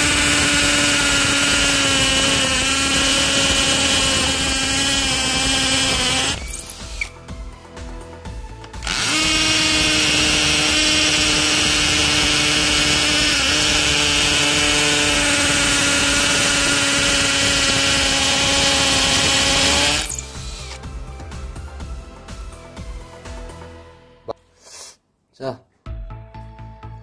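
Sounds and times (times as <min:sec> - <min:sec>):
drill boring into concrete: 0:00.0 - 0:07.2, 0:08.8 - 0:20.8.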